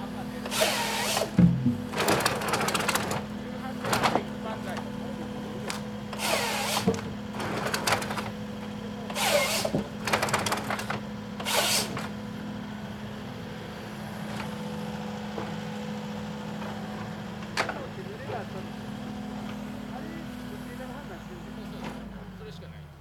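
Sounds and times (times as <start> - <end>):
diesel engine humming: 0.0 - 23.0
hydraulic hissing bursts: 0.5 - 1.4, 6.2 - 6.9, 9.1 - 9.8.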